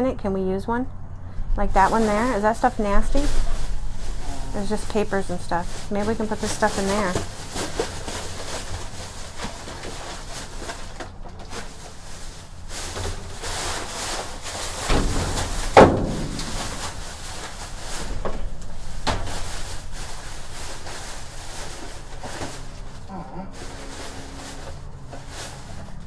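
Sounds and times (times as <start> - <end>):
plastic bags rustling: 1.7 - 26.0
trash clunking in a dumpster: 6.9 - 23.0.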